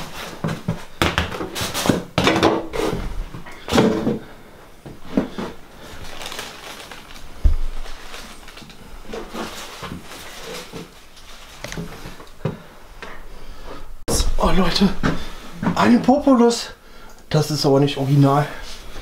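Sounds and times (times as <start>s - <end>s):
dull low thump: 7.4s - 7.8s.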